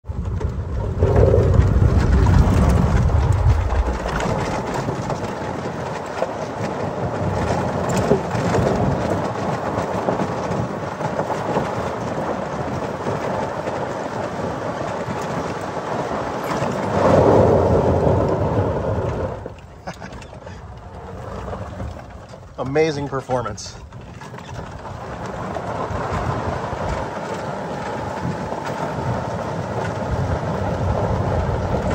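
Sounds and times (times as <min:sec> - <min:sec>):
deep rumble: 0:00.0 - 0:06.2.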